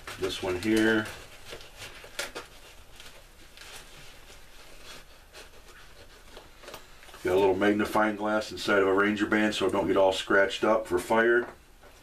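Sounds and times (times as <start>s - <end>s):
fabric pouch rustling: 0.0s - 7.5s.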